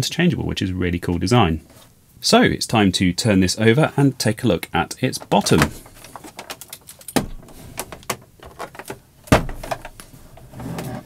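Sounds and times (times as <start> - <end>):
plastic case scraping and clicking: 5.1 - 11.0
plastic case knocking on desk: 9.3 - 10.0.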